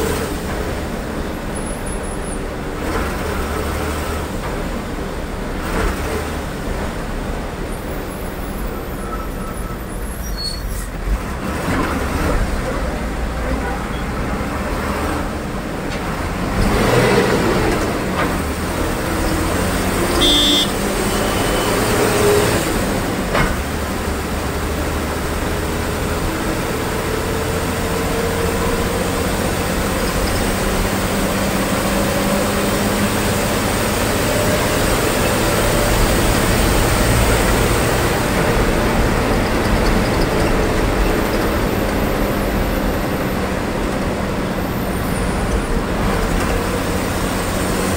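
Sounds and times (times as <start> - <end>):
bus engine and road noise: 0.0 - 47.9
short high-pitched beep: 20.2 - 21.7.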